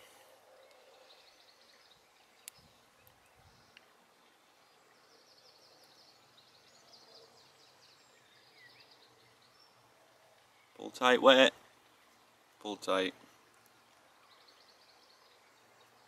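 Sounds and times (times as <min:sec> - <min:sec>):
small ticks: 0:02.4 - 0:04.4.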